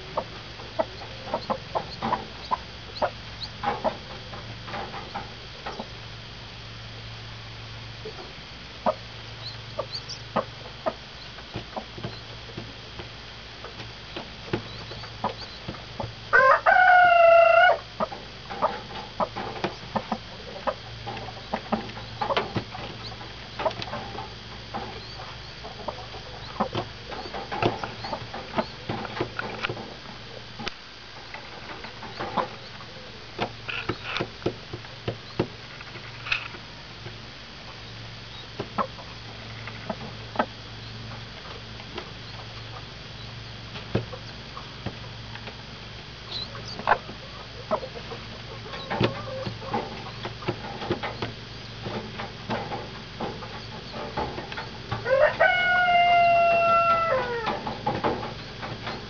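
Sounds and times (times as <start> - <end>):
hen clucking softly: 0.0 - 4.2, 8.0 - 12.3, 14.1 - 22.4, 25.0 - 28.9, 46.3 - 50.4
chicks peeping: 0.0 - 6.0, 8.0 - 13.1, 13.7 - 30.5, 31.3 - 35.6, 37.7 - 45.6, 46.2 - 59.0
loud drawn-out chicken call: 16.3 - 17.9, 55.0 - 57.6.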